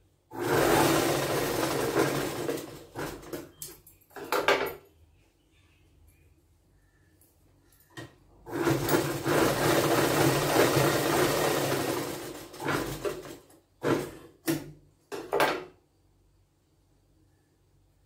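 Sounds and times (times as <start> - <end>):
sewing machine stitching: 0.3 - 3.5, 8.4 - 14.7.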